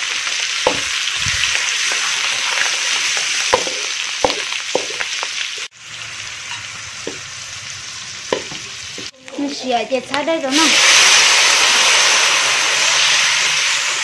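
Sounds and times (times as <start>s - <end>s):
meat sizzling in a wok: 0.0s - 14.0s
spatula scraping and knocking pan: 3.4s - 5.3s, 8.2s - 9.1s.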